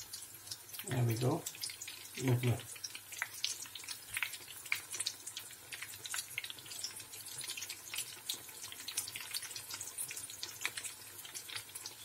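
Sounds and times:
oil sizzling and crackling: 0.0s - 12.0s.

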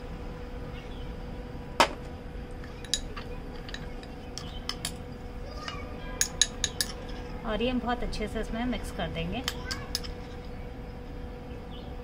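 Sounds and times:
metal spoon clinking glass bowl: 6.2s - 7.0s.

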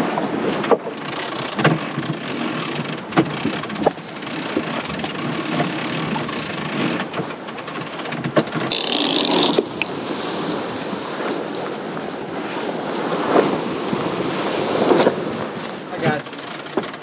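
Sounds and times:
wind and water rushing along hull: 0.0s - 17.0s
sharp knocks and clicks: 0.6s - 10.0s, 16.1s - 17.0s.

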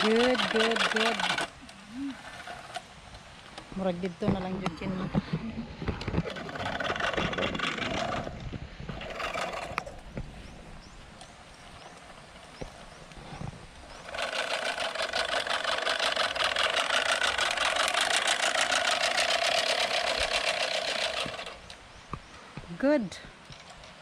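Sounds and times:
reel mower whirring and clicking: 0.0s - 3.7s, 5.9s - 10.3s, 11.2s - 21.8s.

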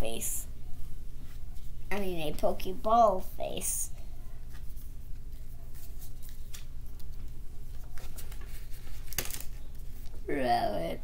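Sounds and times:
steady low hum: 0.0s - 11.0s
cards rustling and tapping: 4.5s - 9.6s.

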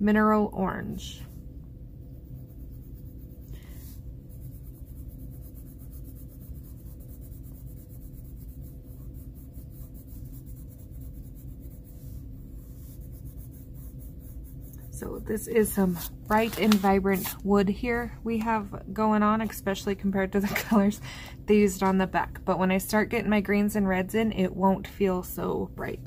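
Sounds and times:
low steady hum: 0.0s - 26.0s
pencil scratching on paper: 1.2s - 17.6s.

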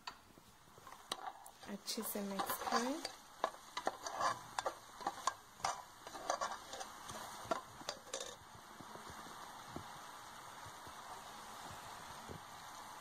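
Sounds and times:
hot oil sizzling: 0.0s - 13.0s
skimmer scraping metal pot: 0.9s - 8.4s.

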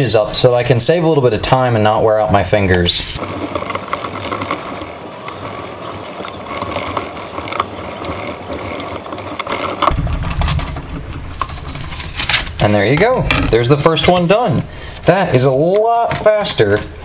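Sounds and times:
creasing tool rasping on paper: 3.2s - 9.9s.

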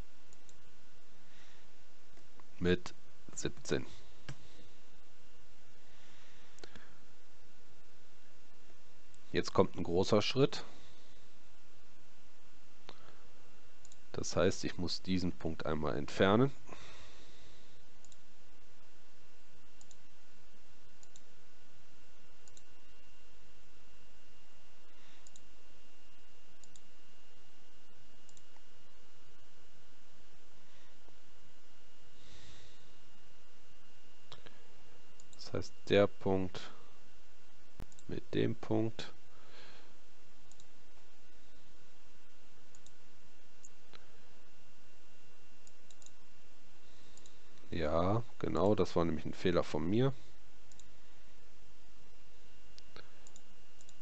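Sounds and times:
faint high whine: 0.0s - 54.0s
computer mouse clicking: 18.0s - 18.2s, 19.8s - 20.0s, 21.0s - 21.3s, 22.4s - 22.7s, 25.2s - 25.5s, 26.6s - 26.9s, 28.3s - 28.6s, 40.4s - 40.7s, 42.7s - 43.0s, 45.6s - 46.2s, 50.7s - 50.9s, 52.8s - 54.0s.

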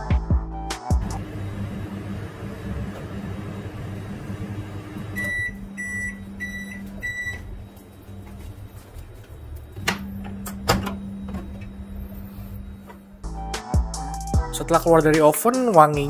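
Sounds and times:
microwave oven hum: 0.9s - 14.5s
microwave door clicks: 9.8s - 11.8s.

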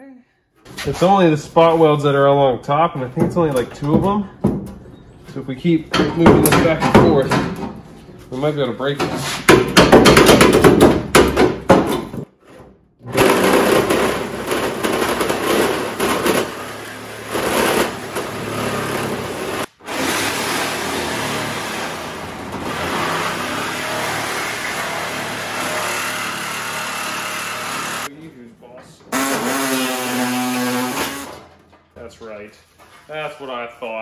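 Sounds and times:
power tool cutting sheet metal: 13.0s - 28.1s, 29.2s - 31.5s.

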